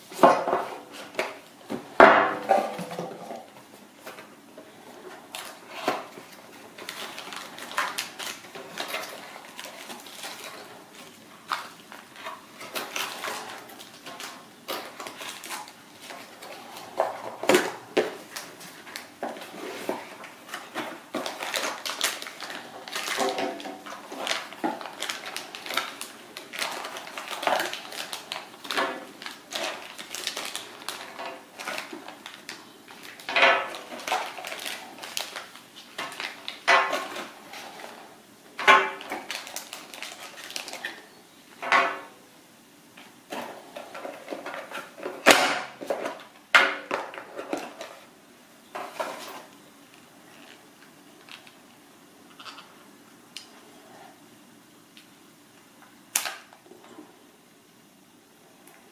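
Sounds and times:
plastic bags crinkling: 5.0 - 41.2.

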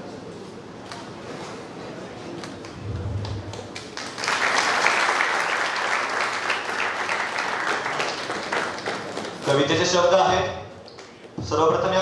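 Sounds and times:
audience clapping: 2.4 - 10.0.

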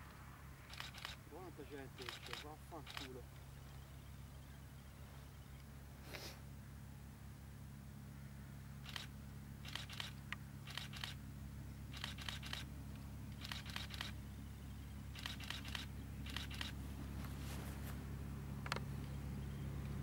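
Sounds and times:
diesel railcar humming: 8.8 - 20.0.

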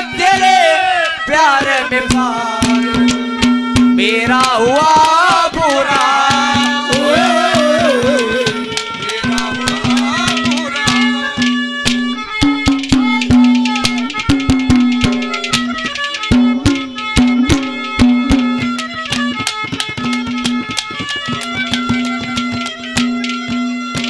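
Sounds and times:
instrumental melody: 0.0 - 24.0
quick hand-drum strokes: 2.1 - 24.0
held drone note: 6.7 - 19.4.

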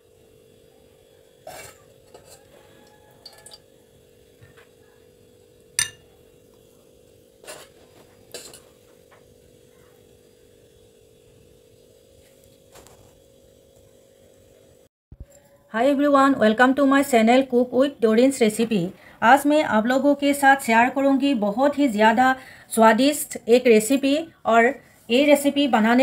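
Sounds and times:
kitchenware clinking: 5.8 - 6.1.

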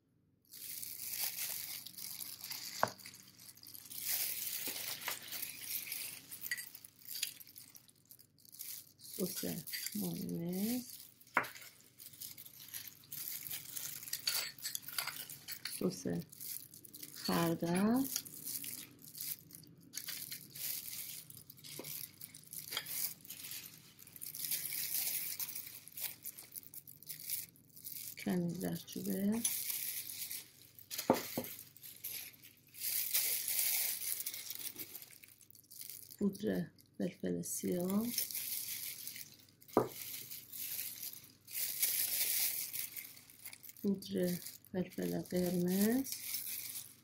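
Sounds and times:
plastic gloves crinkling: 0.4 - 47.0
soft rustling: 0.6 - 17.3, 18.1 - 36.2.

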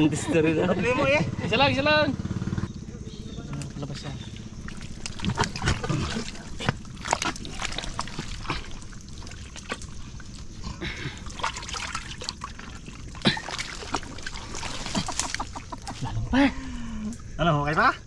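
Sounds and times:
mud squelching and sucking: 3.4 - 17.4
short wet smacks: 4.6 - 10.6.

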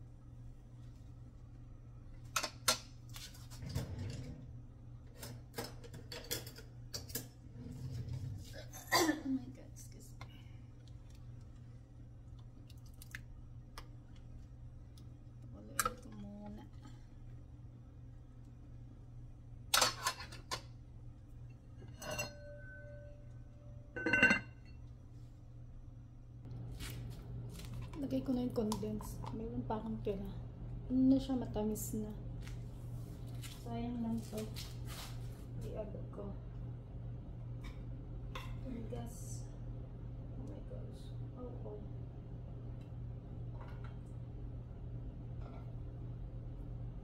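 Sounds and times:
steady low hum: 0.0 - 47.0
kitchen utensils clicking and knocking: 5.2 - 7.4
glass lid clinking on pot: 23.9 - 24.6.

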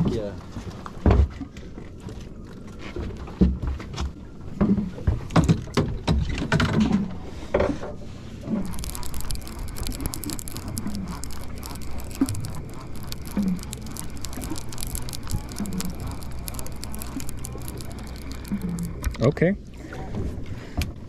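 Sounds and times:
hiss of water and wind: 7.1 - 21.0
fishing line ticking: 8.6 - 19.2.

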